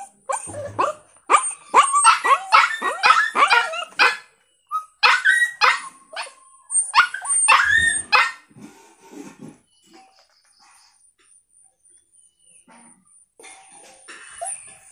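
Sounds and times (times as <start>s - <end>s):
dog barking and yipping: 0.0s - 8.4s.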